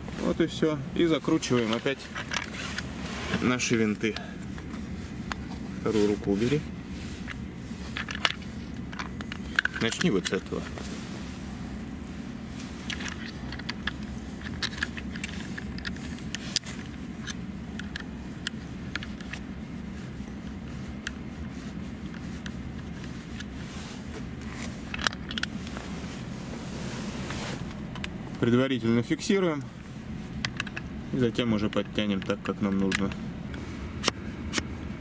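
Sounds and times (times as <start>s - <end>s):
steady low hum: 0.0s - 35.0s
hands handling plastic mount: 7.2s - 10.9s, 12.8s - 19.4s, 24.2s - 25.8s, 30.3s - 30.9s
hex key clicking and scraping: 12.8s - 18.0s.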